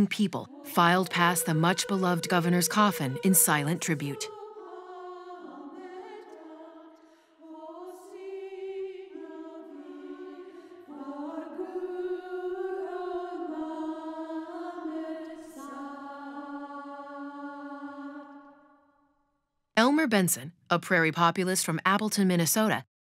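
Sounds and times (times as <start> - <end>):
slow choral singing: 0.0 - 19.0.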